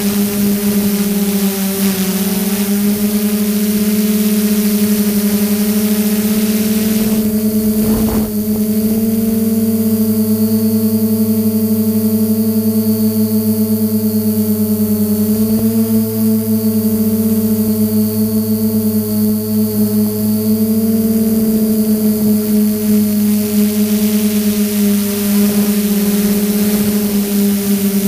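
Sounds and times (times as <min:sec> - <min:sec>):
drone propellers buzzing: 0:05.2 - 0:10.5
hiss: 0:06.0 - 0:09.4
short crackle: 0:06.1 - 0:09.8.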